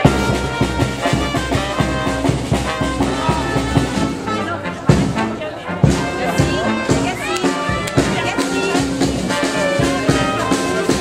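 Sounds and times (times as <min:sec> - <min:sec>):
brass band playing lively tune: 0:00.0 - 0:11.0.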